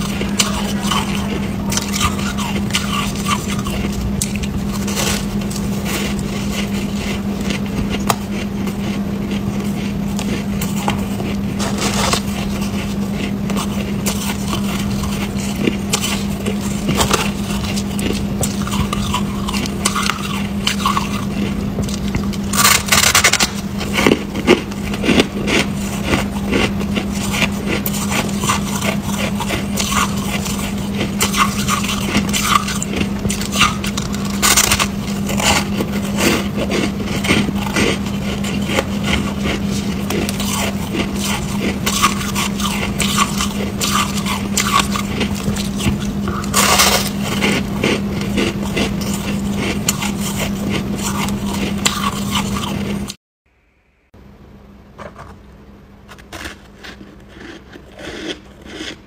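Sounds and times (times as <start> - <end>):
ice crunching while chewed: 0.0 - 53.2, 56.1 - 59.0
steady low hum: 0.0 - 59.0.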